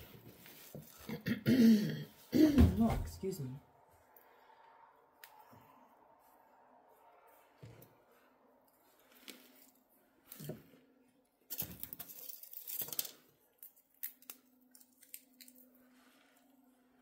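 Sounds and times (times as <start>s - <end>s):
firewood rustling and scraping: 7.5s - 13.4s.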